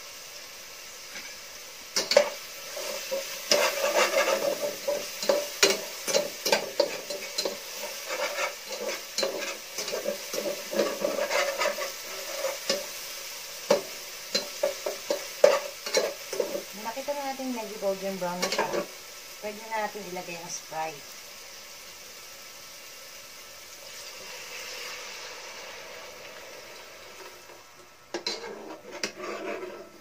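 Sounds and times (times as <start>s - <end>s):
garlic and onion sizzling in oil: 0.0s - 30.0s
turner scraping pot: 2.0s - 12.9s, 13.7s - 17.2s, 18.3s - 18.9s, 27.1s - 30.0s.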